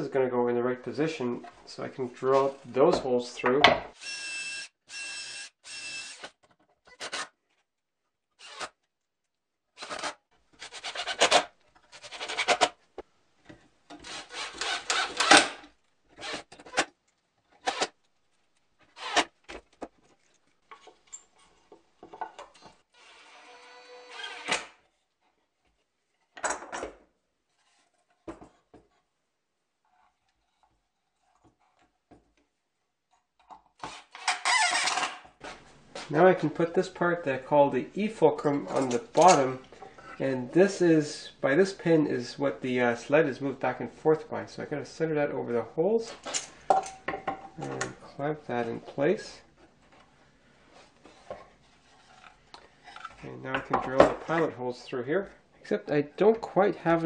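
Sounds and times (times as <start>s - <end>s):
cordless drill boring wood: 4.0s - 6.4s, 8.4s - 8.7s, 9.8s - 11.2s, 14.0s - 15.5s, 16.2s - 16.8s, 19.0s - 19.3s, 22.9s - 24.7s.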